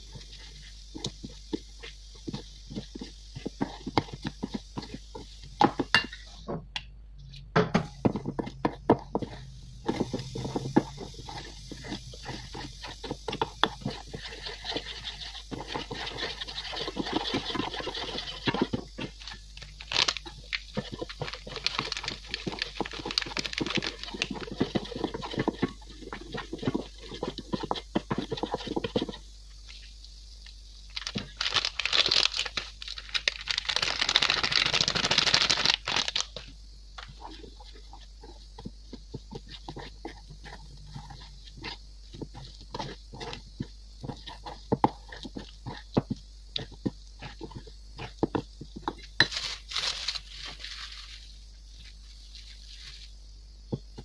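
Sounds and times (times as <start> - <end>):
metal spoon stirring batter in bowl: 0.0 - 6.4, 8.0 - 29.9, 36.4 - 50.7
plastic packet crinkling: 19.6 - 25.2, 30.9 - 36.4, 49.3 - 51.3.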